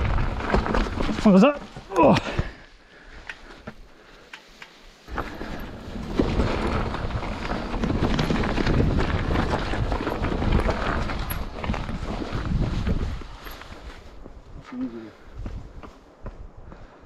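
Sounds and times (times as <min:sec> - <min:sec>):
bike rattling and knocking: 0:00.0 - 0:02.6, 0:05.1 - 0:13.8
tyres crunching over stones: 0:00.0 - 0:02.7, 0:05.1 - 0:14.6.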